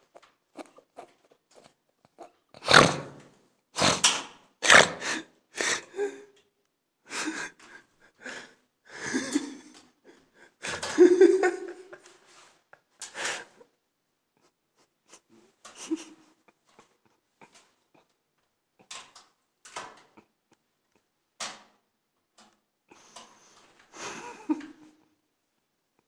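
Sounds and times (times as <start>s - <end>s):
person breathy bursts of air: 3.8s - 6.2s, 13.0s - 13.6s.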